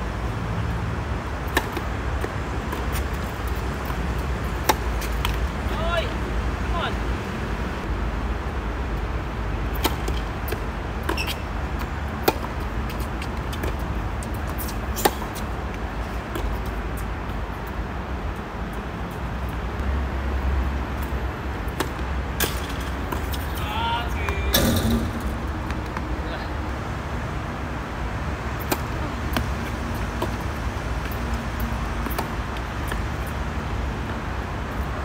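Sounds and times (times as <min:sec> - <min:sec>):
tennis ball hits: 0:01.5 - 0:05.4, 0:09.7 - 0:11.4, 0:12.2 - 0:13.8, 0:24.3 - 0:26.1, 0:28.6 - 0:30.4
steady low rumble: 0:22.9 - 0:28.2.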